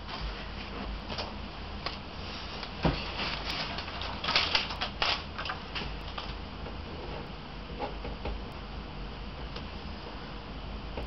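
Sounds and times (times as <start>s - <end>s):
paper rustling: 2.3s - 6.3s.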